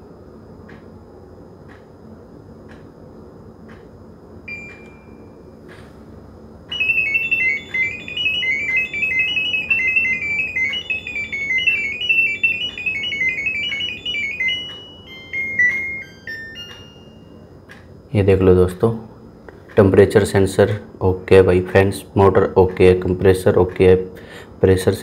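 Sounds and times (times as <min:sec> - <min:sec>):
fast high electronic beeps: 0:06.7 - 0:17.1.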